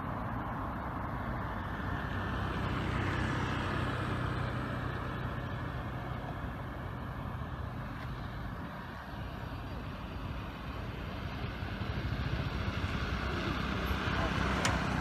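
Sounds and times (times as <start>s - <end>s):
vehicle engine droning: 0.0s - 15.0s.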